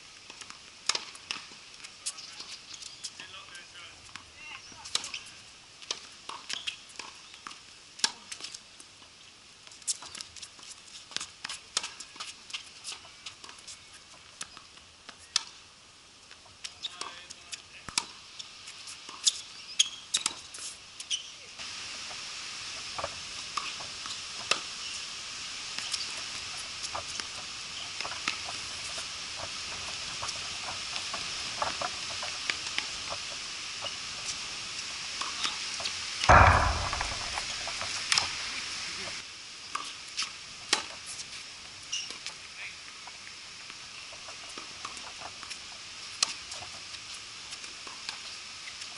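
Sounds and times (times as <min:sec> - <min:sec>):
steady hiss: 0:20.4 - 0:48.9
ball bouncing: 0:36.3 - 0:38.1
racquets striking ball: 0:36.3 - 0:38.2.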